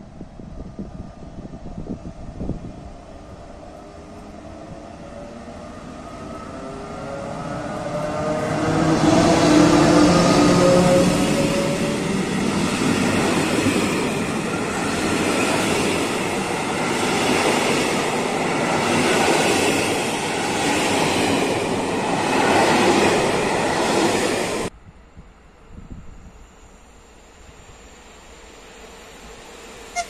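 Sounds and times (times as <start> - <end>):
train wheels rushing on rails: 3.6 - 24.7.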